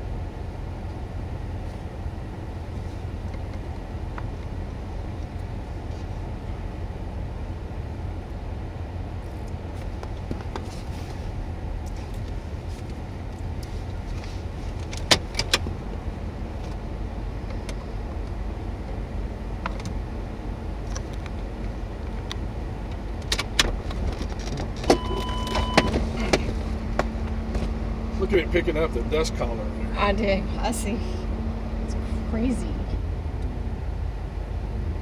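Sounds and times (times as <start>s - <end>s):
vehicle rumble: 0.0s - 35.0s
electronic beep: 25.0s - 26.0s.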